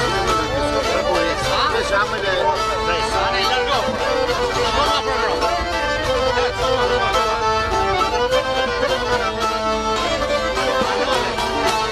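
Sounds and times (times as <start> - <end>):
accordion: 0.0 - 11.9
lutes plucking: 0.0 - 11.9.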